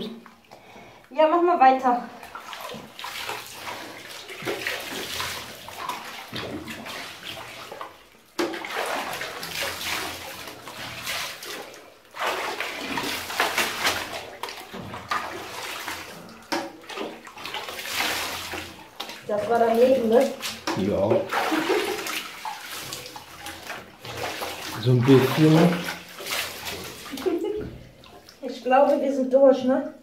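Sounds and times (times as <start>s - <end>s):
water streaming over hair: 2.2s - 29.2s.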